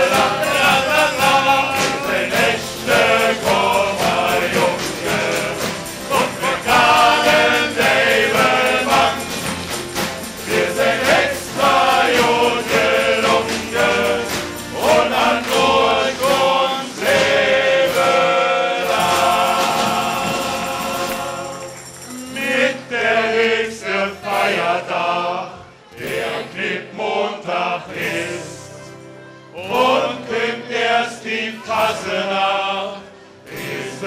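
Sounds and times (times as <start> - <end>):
bass drum and snare: 0.0 - 21.4
acoustic guitar: 0.0 - 26.9
men singing together: 0.0 - 28.9, 29.6 - 34.0.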